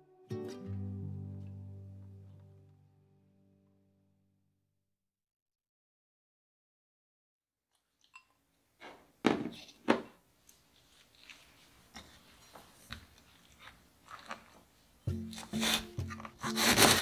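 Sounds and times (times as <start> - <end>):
soft background music: 0.0 - 3.6, 15.0 - 17.0
cabbage crunching under knife: 12.9 - 17.0.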